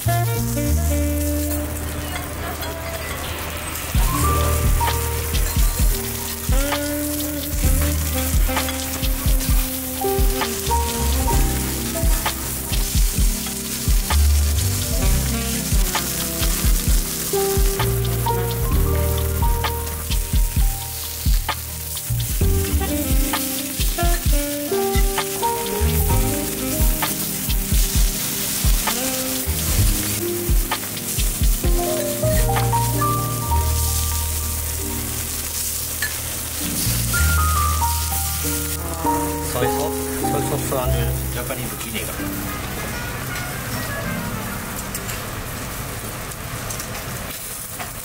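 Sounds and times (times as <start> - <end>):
meat sizzling on a griddle: 0.0 - 48.0
background music with beat: 4.0 - 35.1.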